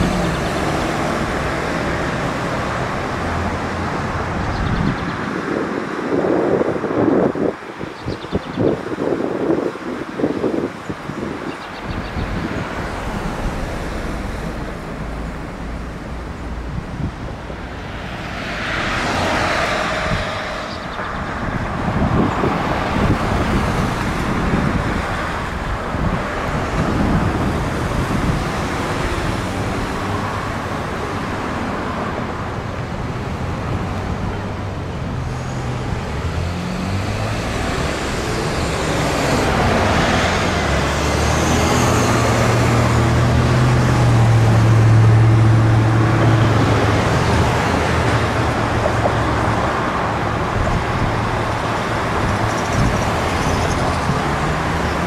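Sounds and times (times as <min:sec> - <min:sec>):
cars passing: 0:00.0 - 0:55.0
low engine hum: 0:11.9 - 0:18.5.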